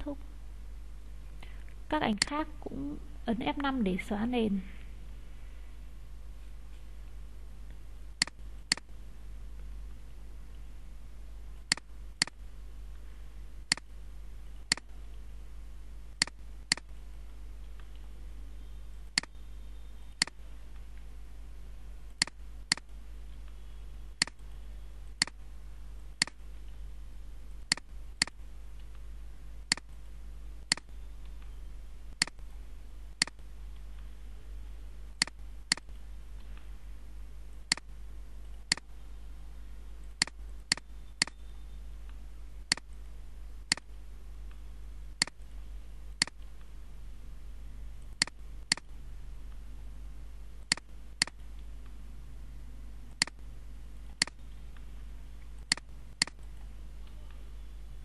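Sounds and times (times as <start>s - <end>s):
low electrical hum: 0.0s - 58.0s
mouse and keyboard clicks: 55.6s - 57.4s.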